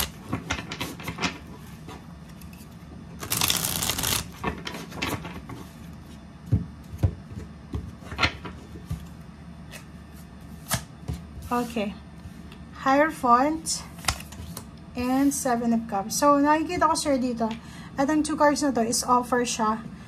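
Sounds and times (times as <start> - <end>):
cards being shuffled: 0.0 - 0.3, 3.2 - 4.6.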